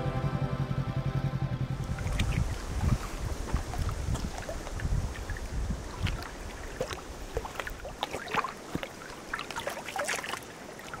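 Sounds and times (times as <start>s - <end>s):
wind rumble on microphone: 1.5s - 7.9s
small waves lapping: 1.8s - 11.0s.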